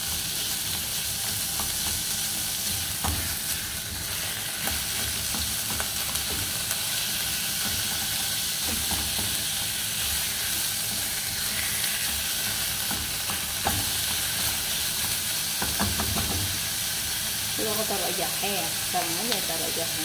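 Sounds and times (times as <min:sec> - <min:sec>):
meat and onions sizzling in oil: 0:00.0 - 0:20.0
spatula scraping and knocking pan: 0:07.5 - 0:14.8, 0:15.6 - 0:16.6.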